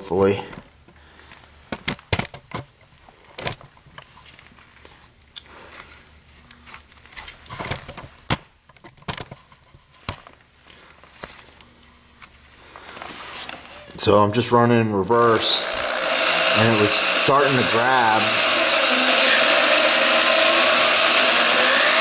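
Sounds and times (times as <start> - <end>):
drill motor running: 15.2 - 22.0.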